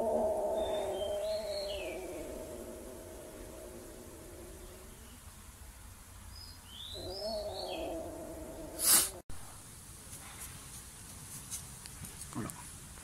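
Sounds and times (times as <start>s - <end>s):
faint bird chirps: 0.5s - 2.6s, 6.3s - 8.9s.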